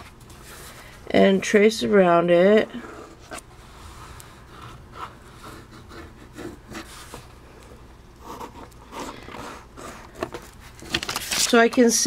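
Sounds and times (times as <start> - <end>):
pen scratching on paper: 4.5 - 7.2
paper shifting: 8.9 - 12.0.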